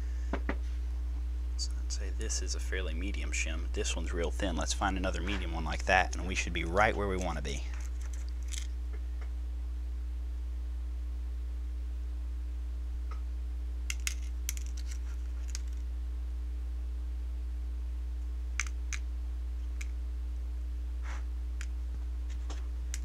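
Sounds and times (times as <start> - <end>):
low electrical hum: 0.0 - 23.0
small metal parts clicking: 7.2 - 8.7, 13.9 - 15.8.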